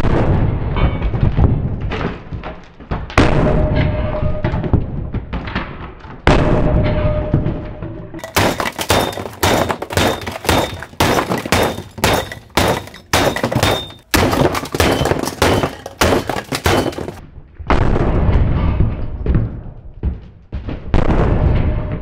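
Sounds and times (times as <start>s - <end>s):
hammer smashing plastic toy: 8.2s - 17.2s.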